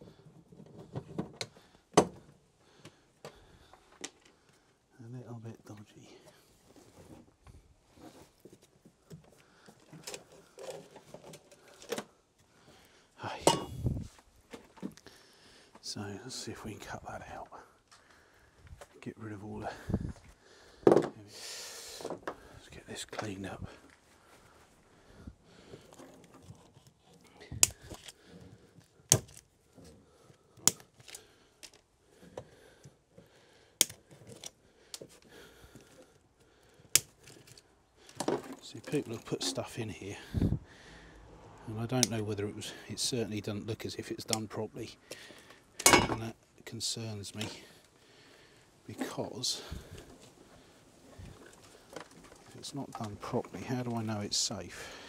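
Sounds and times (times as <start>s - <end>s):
wire snipping clicks: 33.8s - 34.5s
cables rustling on metal floor: 48.9s - 54.0s.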